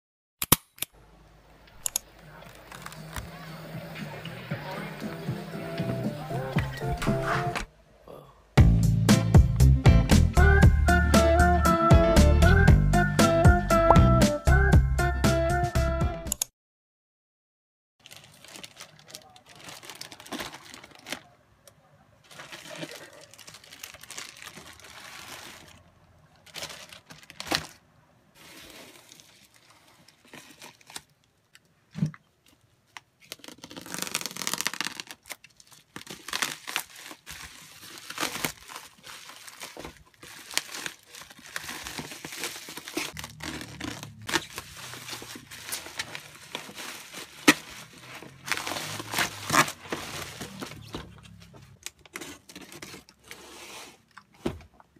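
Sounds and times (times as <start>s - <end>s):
plastic packaging crinkling and tearing: 2.3s - 3.4s, 18.0s - 21.4s, 22.2s - 27.8s, 28.4s - 31.3s, 32.9s - 54.2s.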